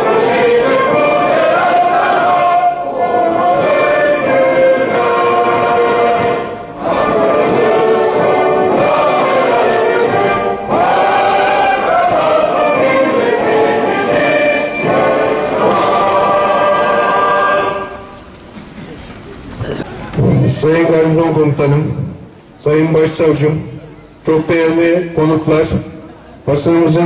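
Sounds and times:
choir singing: 0:00.0 - 0:18.3
musical backing: 0:00.0 - 0:21.8.

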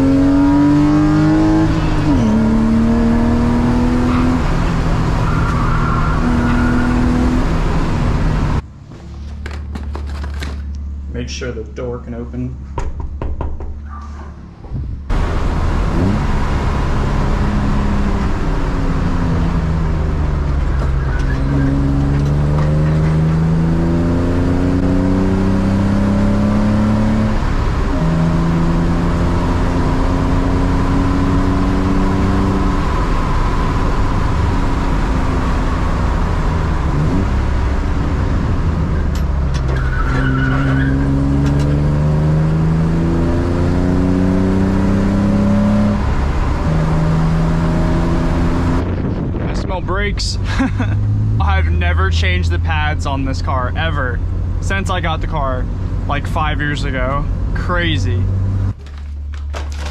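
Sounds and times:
car engine revving through gears: 0:00.0 - 0:08.6, 0:13.9 - 0:49.8, 0:50.4 - 0:57.6, 0:58.2 - 0:58.8.

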